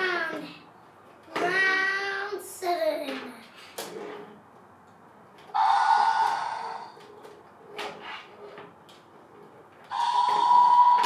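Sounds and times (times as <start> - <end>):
breathy hissing roars: 5.6 - 7.0.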